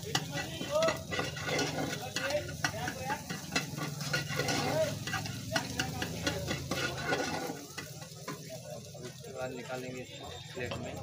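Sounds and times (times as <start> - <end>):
food sizzling: 0.0 - 11.0
metal spatula scraping a pan: 0.0 - 11.0.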